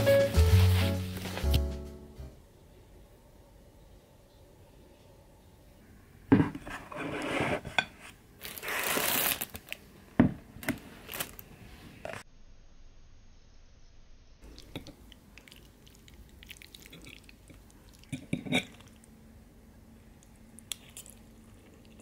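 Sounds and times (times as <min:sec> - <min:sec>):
plastic packaging crinkling: 0:08.4 - 0:09.9, 0:10.6 - 0:11.5.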